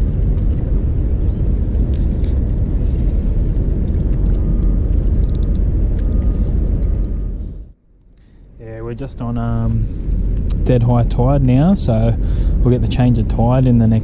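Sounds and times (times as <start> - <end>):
wind buffeting microphone: 0.0 - 7.7.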